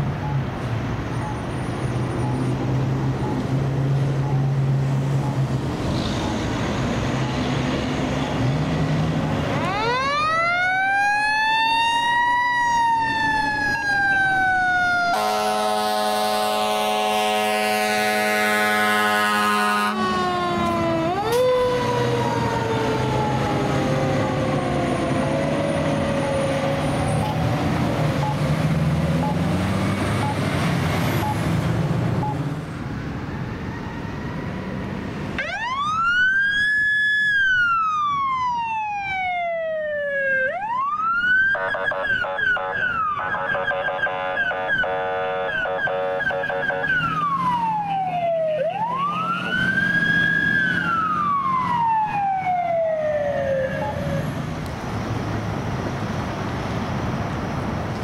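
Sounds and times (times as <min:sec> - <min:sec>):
fire engine diesel rumbling: 0:00.0 - 0:58.0
siren winding down: 0:09.5 - 0:16.8, 0:18.6 - 0:28.5, 0:29.1 - 0:31.6, 0:33.1 - 0:54.4
electronic siren wailing: 0:09.6 - 0:28.5, 0:29.1 - 0:29.6, 0:30.2 - 0:30.5, 0:33.2 - 0:54.4
siren yelping high-low: 0:35.4 - 0:54.4.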